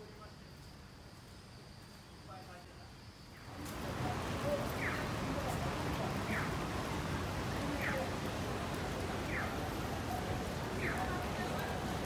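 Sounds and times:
traffic: 0:02.3 - 0:12.0
rain on a wet street: 0:03.3 - 0:12.0.

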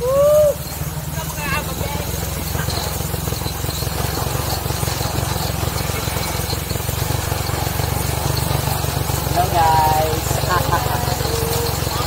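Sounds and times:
small motorcycle engine running: 0:00.0 - 0:12.0.

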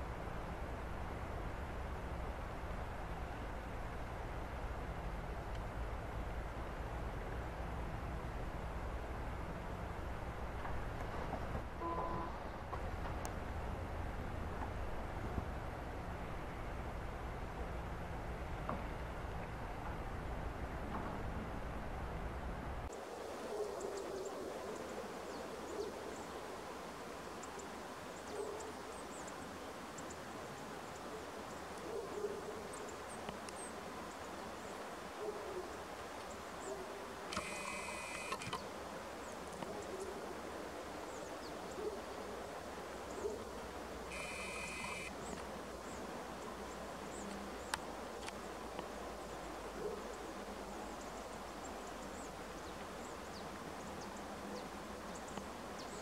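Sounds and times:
outdoor background noise: 0:00.0 - 0:56.0
faint low calls or blips: 0:11.8 - 0:12.5
brief whirring: 0:37.3 - 0:38.6.

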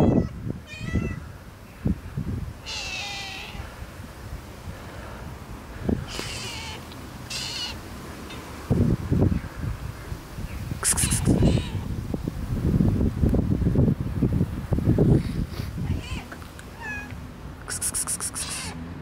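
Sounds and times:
cat meowing: 0:00.0 - 0:01.2, 0:02.7 - 0:03.6, 0:06.2 - 0:07.8, 0:16.0 - 0:17.2, 0:18.3 - 0:18.8.

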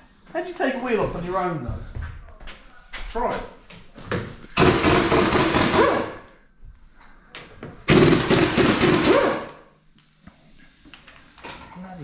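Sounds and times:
impact wrench rattling: 0:07.9 - 0:09.2.

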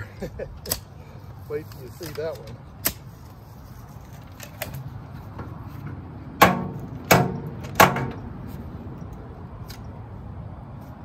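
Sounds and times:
digger clanking against wheelbarrow: 0:06.4 - 0:08.3.

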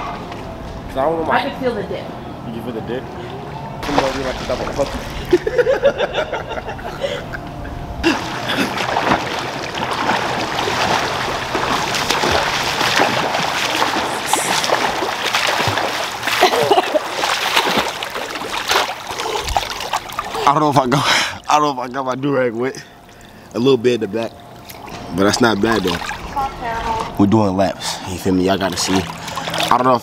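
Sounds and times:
water splashing from swimming: 0:03.8 - 0:05.7, 0:08.0 - 0:27.3, 0:28.0 - 0:30.0.

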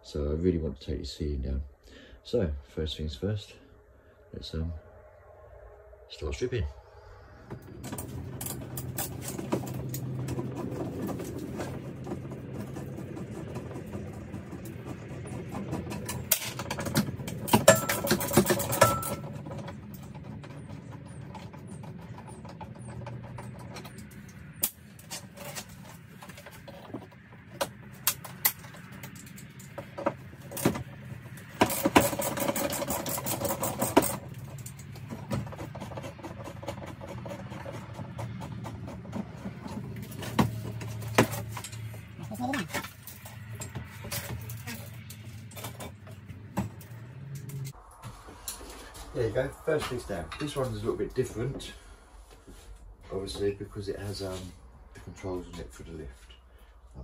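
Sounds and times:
tools clicking and knocking: 0:07.6 - 0:47.8.

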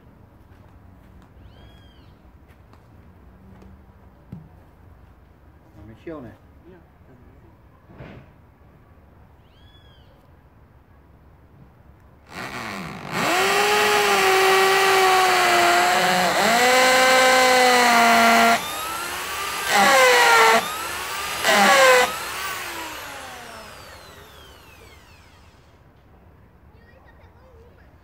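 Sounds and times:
electric saw cutting log: 0:12.3 - 0:25.8.

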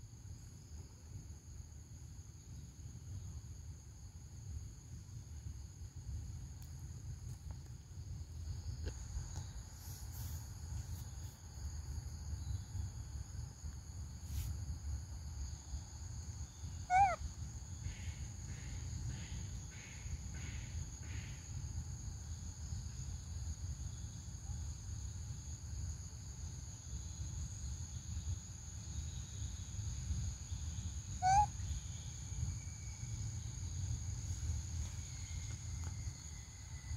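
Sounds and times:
forest insects droning: 0:00.0 - 0:36.9
pitched animal calls: 0:16.8 - 0:17.2, 0:31.2 - 0:31.6.

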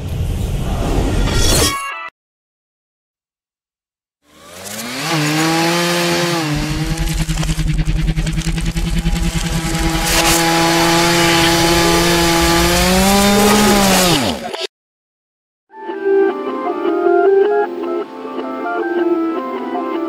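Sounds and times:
chainsaw motor humming: 0:04.3 - 0:14.6.

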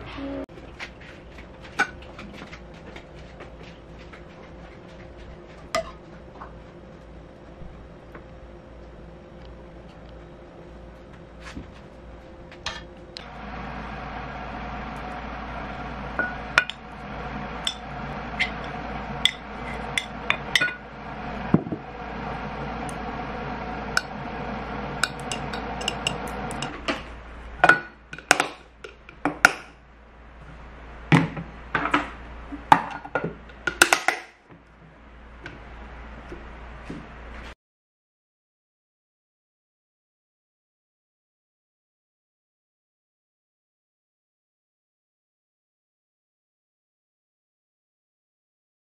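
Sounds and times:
steady hum: 0:00.0 - 0:37.6.

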